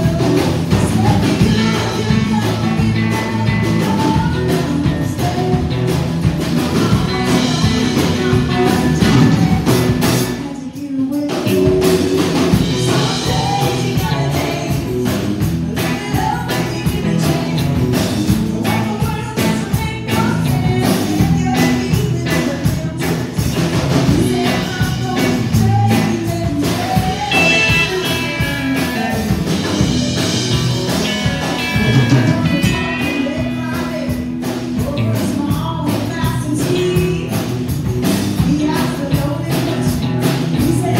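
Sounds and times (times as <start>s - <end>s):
woman singing: 0.0s - 30.0s, 31.0s - 40.9s
drums: 0.0s - 40.9s
electric bass: 0.0s - 40.9s
acoustic guitar: 23.4s - 40.9s.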